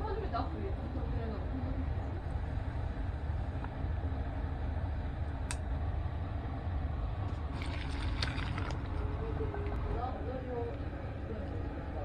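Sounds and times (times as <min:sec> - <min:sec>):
steady low hum: 0:00.0 - 0:12.0
liquid splashing and trickling: 0:07.3 - 0:10.2.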